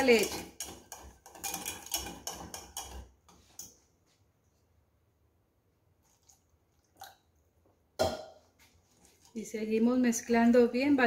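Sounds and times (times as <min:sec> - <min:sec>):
whisk clicking against saucepan: 0:00.0 - 0:03.1.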